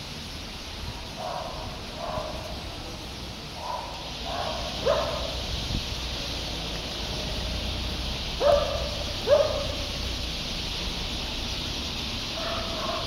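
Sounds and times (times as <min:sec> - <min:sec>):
flock of birds chattering: 0:00.9 - 0:13.0
dog barking: 0:01.2 - 0:02.6, 0:03.6 - 0:05.4, 0:08.4 - 0:09.9, 0:12.3 - 0:13.0.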